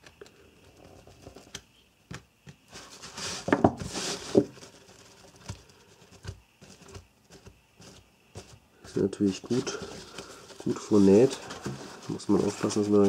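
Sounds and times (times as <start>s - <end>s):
fabric rustling and scraping: 2.6s - 13.0s.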